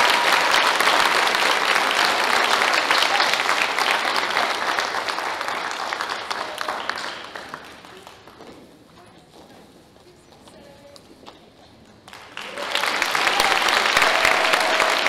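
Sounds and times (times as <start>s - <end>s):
audience applauding: 0.0s - 8.4s, 12.1s - 15.0s.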